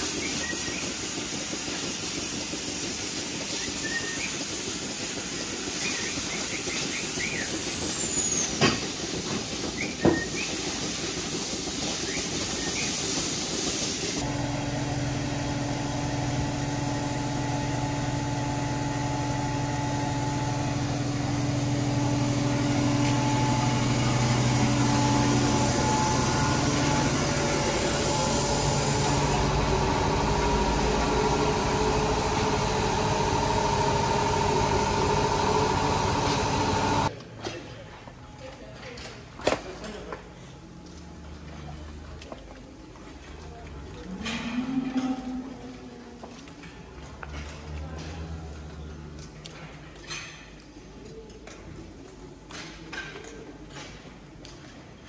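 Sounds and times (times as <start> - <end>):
hose water jet hissing: 0.0 - 37.1
truck engine and pump droning: 0.0 - 37.1.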